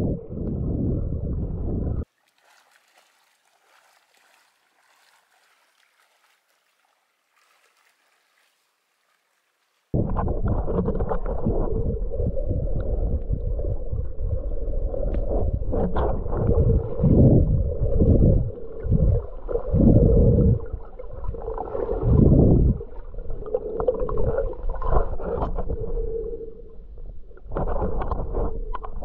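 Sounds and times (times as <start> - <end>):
underwater water rumble: 0.0 - 2.1, 9.9 - 29.0.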